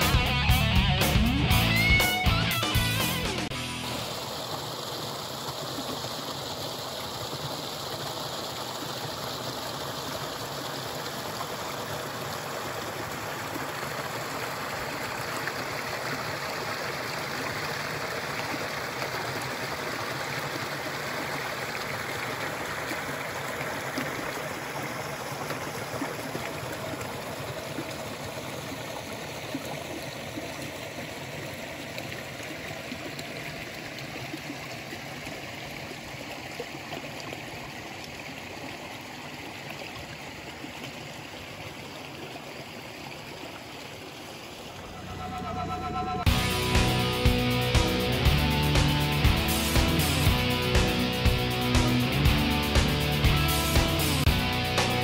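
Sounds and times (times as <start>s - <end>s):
brook rushing and splashing: 3.4s - 45.2s.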